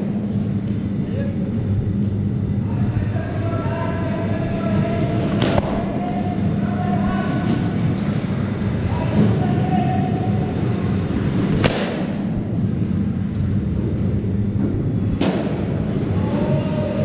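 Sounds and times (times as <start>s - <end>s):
low hall rumble: 0.0s - 17.0s
cricket bat striking ball: 5.3s - 6.0s, 11.5s - 12.3s.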